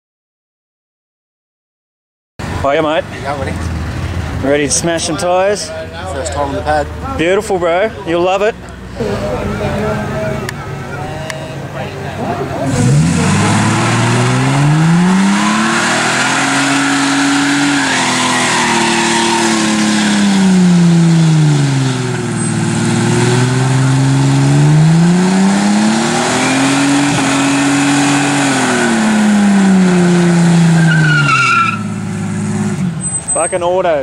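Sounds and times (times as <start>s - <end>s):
spinning tyres squealing: 12.2s - 34.0s
car engine revving hard: 12.6s - 33.2s.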